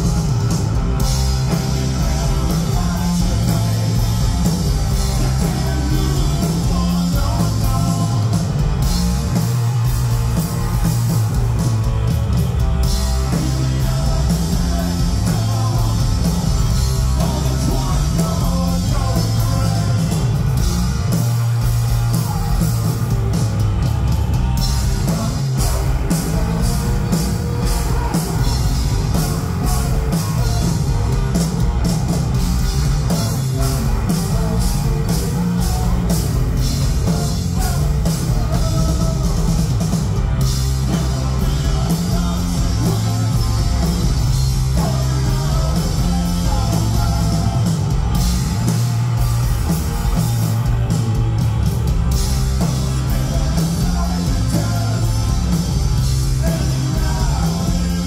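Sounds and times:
heavy rock band playing: 0.0s - 58.0s.

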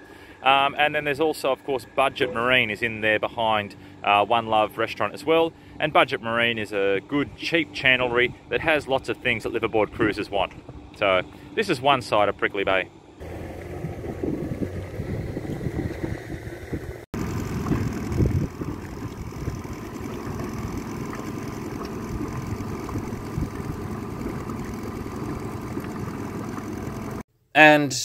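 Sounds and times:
boat motor running: 13.2s - 27.3s.

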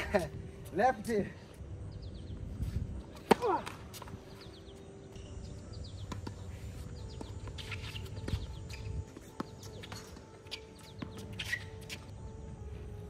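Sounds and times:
birds chirping: 0.0s - 13.0s
racket striking tennis ball: 3.2s - 4.1s.

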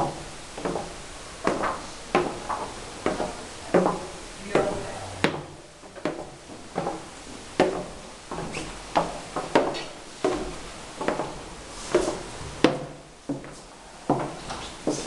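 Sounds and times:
footsteps on wooden floor: 0.0s - 15.0s.

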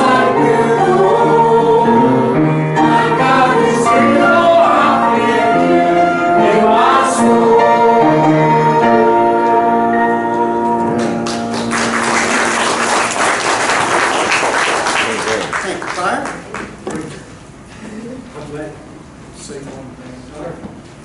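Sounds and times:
church choir singing: 0.0s - 13.8s
congregation applauding: 10.9s - 16.8s.

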